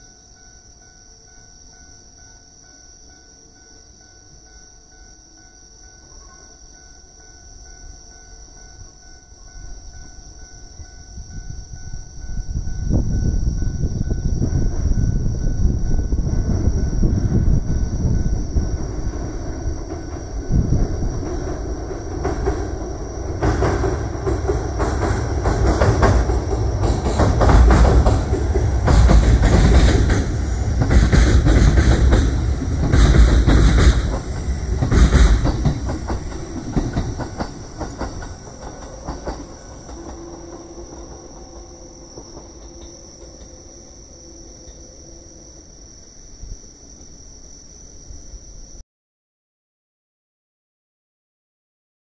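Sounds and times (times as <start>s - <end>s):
train rumbling: 7.6s - 45.8s
wheels clacking over rail joints: 18.8s - 43.6s.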